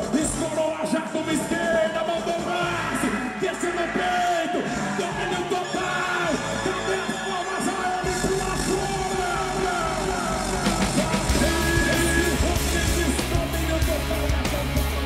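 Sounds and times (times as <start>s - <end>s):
rock music with shouted vocal: 0.0s - 15.0s
heavy bass and drum beat: 8.0s - 15.0s.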